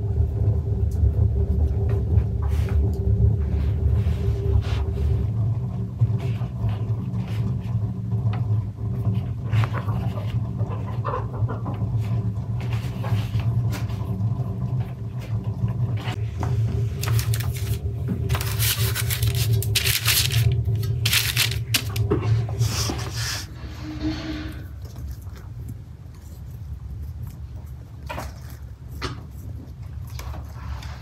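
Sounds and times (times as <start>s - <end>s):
steady low hum: 0.0s - 31.0s
baking paper crinkling: 16.8s - 23.5s.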